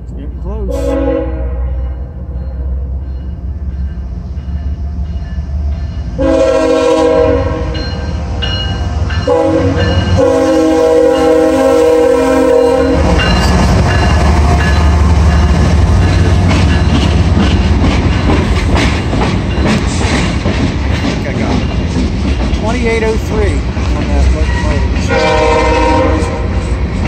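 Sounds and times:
locomotive engine rumble: 0:00.0 - 0:27.0
locomotive horn blasts: 0:00.7 - 0:02.0, 0:06.2 - 0:07.8, 0:09.3 - 0:13.2, 0:25.0 - 0:26.6
train wheels on rails: 0:01.8 - 0:27.0.

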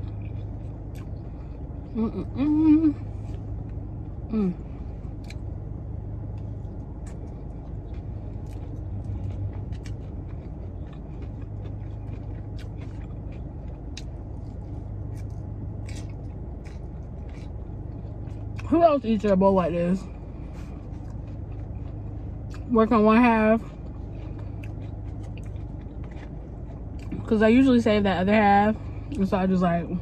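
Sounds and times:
chewing salad: 0:00.0 - 0:19.4, 0:20.0 - 0:27.8
car cabin hum: 0:00.0 - 0:30.0
person humming mm: 0:02.0 - 0:03.0, 0:04.3 - 0:04.7.

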